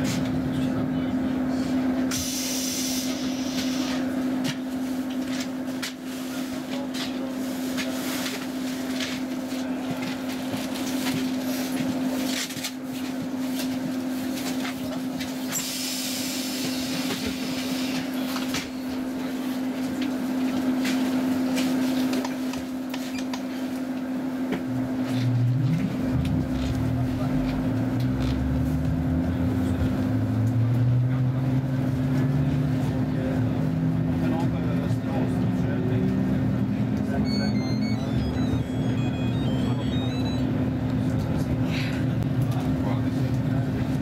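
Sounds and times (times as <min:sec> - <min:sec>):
train equipment humming: 0:34.7 - 0:42.6
low rising train whine: 0:35.5 - 0:41.5.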